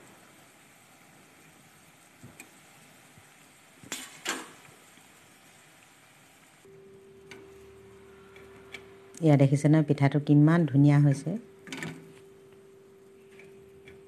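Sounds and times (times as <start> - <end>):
frying in hot oil sizzle: 0.0 - 9.3.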